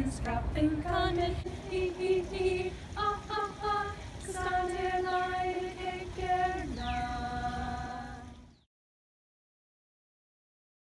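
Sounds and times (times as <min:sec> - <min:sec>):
women singing in harmony: 0:00.0 - 0:08.5.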